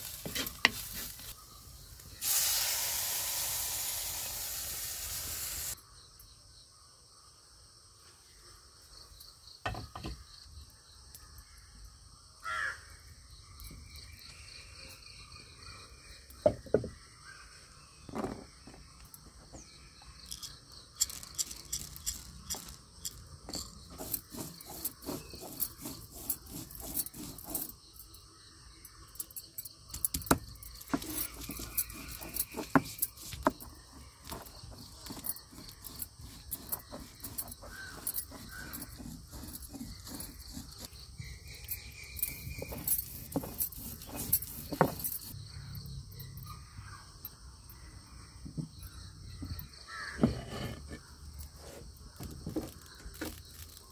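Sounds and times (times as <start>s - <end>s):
crickets trilling: 0.0s - 53.9s
stone roller knocking on grinding stone: 9.6s - 10.2s, 16.4s - 17.0s, 20.4s - 27.8s, 29.9s - 40.9s, 42.2s - 45.4s, 48.4s - 51.0s.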